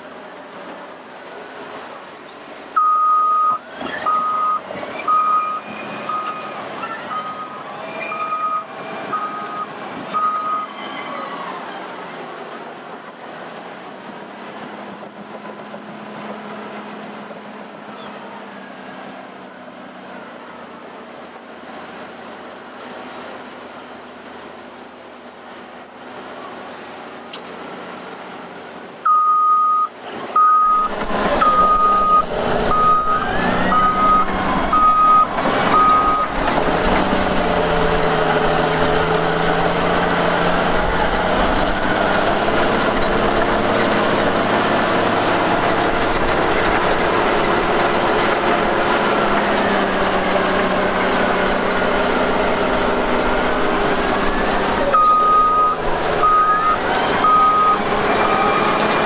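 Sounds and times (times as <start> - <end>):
heavy diesel engine: 0.0 - 59.0
back-up alarm beeping: 2.8 - 6.4, 7.1 - 10.7, 29.1 - 36.4, 55.0 - 58.4.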